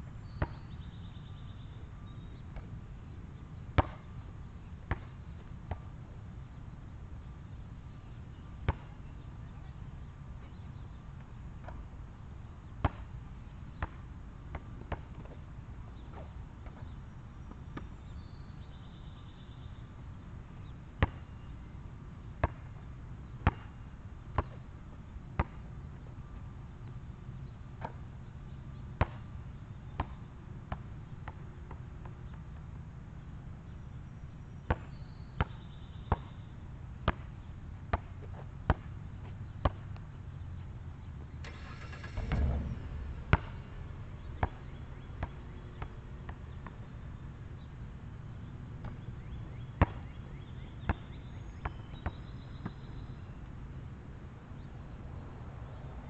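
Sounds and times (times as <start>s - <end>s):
basketball bouncing on asphalt: 0.3s - 0.9s, 3.8s - 4.1s, 4.8s - 6.0s, 8.6s - 9.0s, 12.7s - 13.2s, 13.8s - 18.9s, 21.0s - 21.5s, 22.4s - 22.8s, 23.4s - 24.6s, 25.4s - 25.8s, 29.0s - 32.7s, 34.7s - 36.4s, 37.0s - 40.1s, 42.2s - 47.6s, 48.8s - 52.9s
steady low rumble: 41.3s - 47.5s
rattling clatter: 41.4s - 44.3s.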